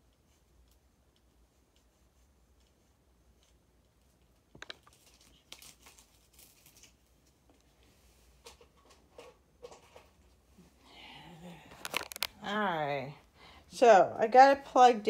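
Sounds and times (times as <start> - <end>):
packaging crinkling: 4.5 - 7.4, 11.7 - 12.5.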